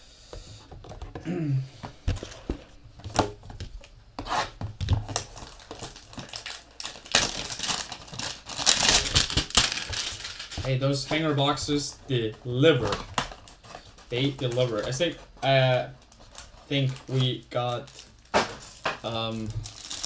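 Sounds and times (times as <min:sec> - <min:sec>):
packaging tearing and crinkling: 0:04.4 - 0:11.9, 0:12.8 - 0:20.0
card boxes knocking and clicking: 0:04.5 - 0:06.4, 0:08.6 - 0:15.8, 0:18.3 - 0:19.7.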